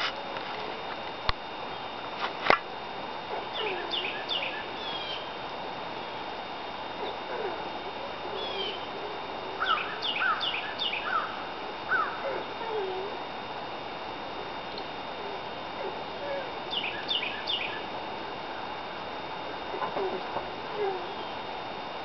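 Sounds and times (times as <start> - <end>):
songbird calls: 3.5 - 5.4, 8.4 - 8.9, 9.6 - 13.0, 16.7 - 17.9, 19.9 - 21.4.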